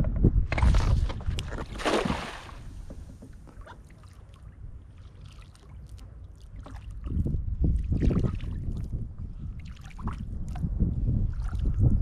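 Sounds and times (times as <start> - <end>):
cast net splashing into water: 1.6 - 2.7.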